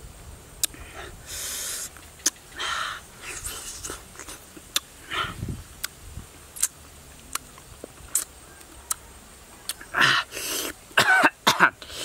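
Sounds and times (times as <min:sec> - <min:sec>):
chewing clicks: 0:06.6 - 0:09.0.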